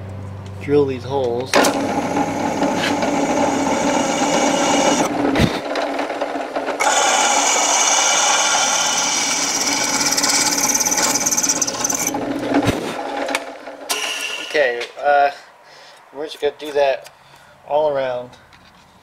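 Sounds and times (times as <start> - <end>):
drill press whining: 1.6 - 14.6
drill click: 1.6 - 14.8
drill grating through metal: 1.8 - 5.1, 6.8 - 12.2.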